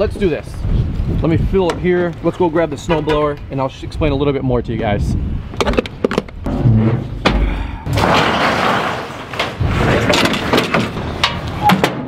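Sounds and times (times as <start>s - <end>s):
knocks and clunks: 5.6s - 12.0s.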